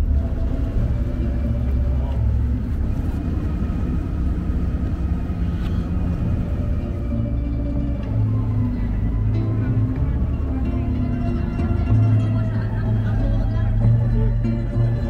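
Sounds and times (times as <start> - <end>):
boat engine rumbling: 0.0 - 15.0.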